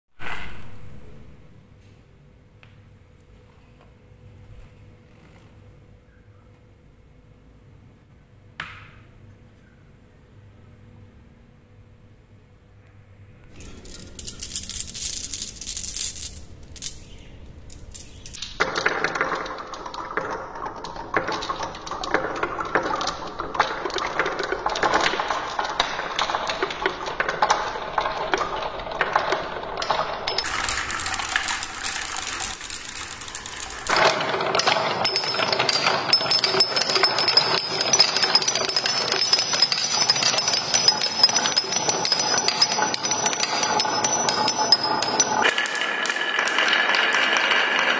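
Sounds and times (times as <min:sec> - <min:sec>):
marbles clattering down wooden runs: 0:13.6 - 0:47.9.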